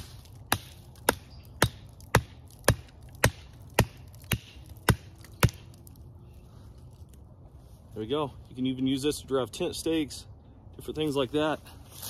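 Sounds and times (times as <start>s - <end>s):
hatchet hammering wooden stake: 0.0s - 5.8s.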